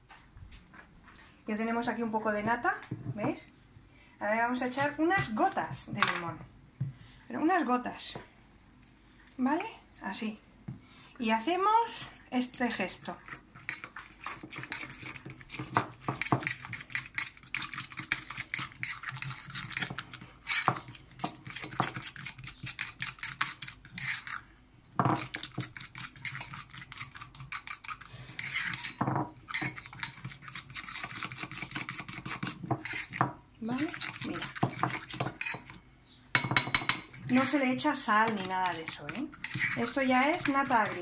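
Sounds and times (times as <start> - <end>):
cutlery scraping ceramic bowl: 12.0 - 35.8, 36.4 - 41.0.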